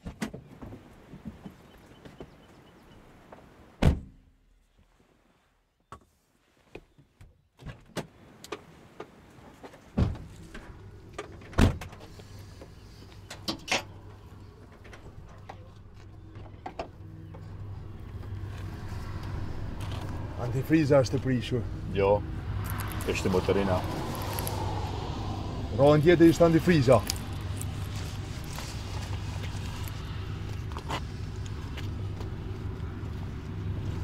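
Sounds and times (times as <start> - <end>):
car door shutting: 3.8 - 4.2
low steady hum: 10.2 - 34.0.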